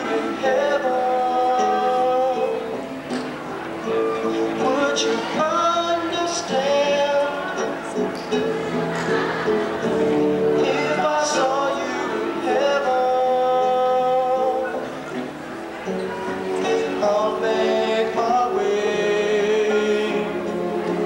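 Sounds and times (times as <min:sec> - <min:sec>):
young man singing: 0:00.0 - 0:02.8, 0:04.3 - 0:08.5, 0:10.5 - 0:15.0, 0:16.5 - 0:21.0
musical accompaniment: 0:00.0 - 0:21.0.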